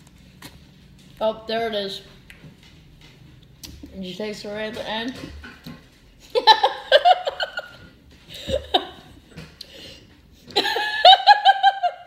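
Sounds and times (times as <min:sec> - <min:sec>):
people laughing: 0:06.3 - 0:07.8, 0:10.5 - 0:12.0.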